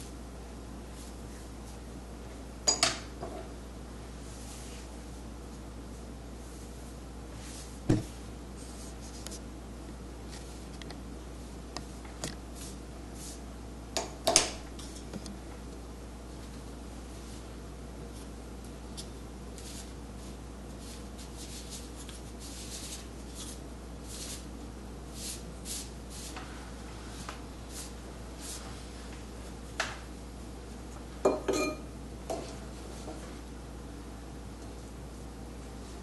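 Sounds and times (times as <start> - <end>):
ink brush swishing on paper: 19.6 - 24.5, 25.1 - 29.1
brush clinking on porcelain plate: 31.3 - 31.8.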